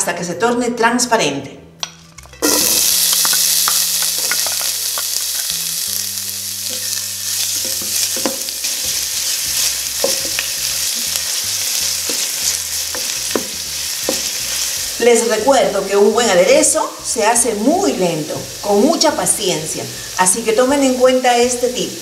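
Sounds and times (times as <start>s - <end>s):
onion sizzling in oil: 2.4s - 22.0s
wooden spoon stirring in pot: 6.6s - 15.3s.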